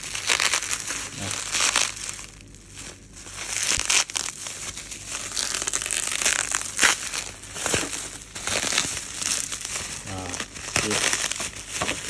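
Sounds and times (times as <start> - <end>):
bubble wrap crinkling: 0.0 - 12.0.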